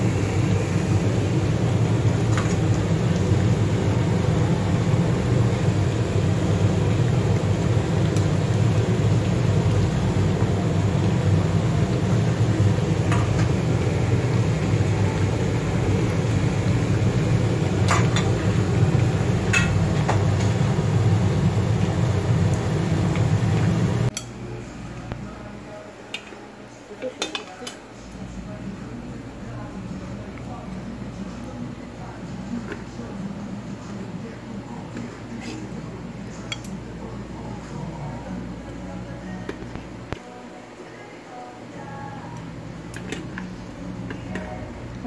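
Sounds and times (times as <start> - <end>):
stew boiling in a pan: 0.0 - 41.0
gas burner roar: 0.0 - 45.0.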